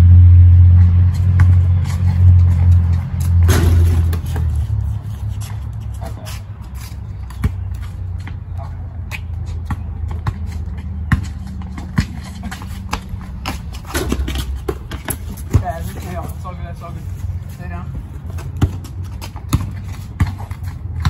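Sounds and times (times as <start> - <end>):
passing vehicle engine hum: 0.0 - 21.0
basketball bouncing on concrete: 0.7 - 5.4, 7.2 - 8.4, 9.1 - 16.4, 18.2 - 21.0.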